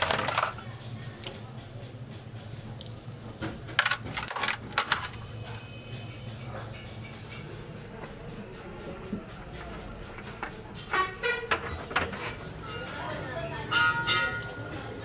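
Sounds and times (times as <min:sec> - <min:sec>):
steel parts clinking on metal tray: 0:00.0 - 0:01.6, 0:03.7 - 0:05.3.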